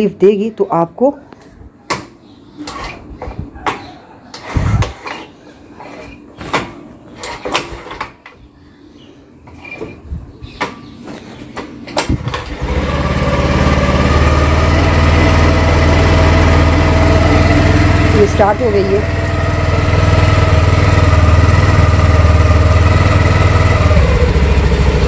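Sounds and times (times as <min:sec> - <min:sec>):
scooter engine idling: 0:12.2 - 0:25.0.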